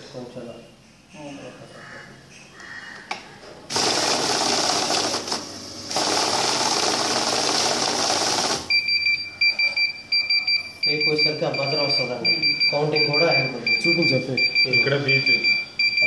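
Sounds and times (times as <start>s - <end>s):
banknote counting machine whirring: 3.7s - 8.7s
pulsing two-tone beep: 8.7s - 16.0s.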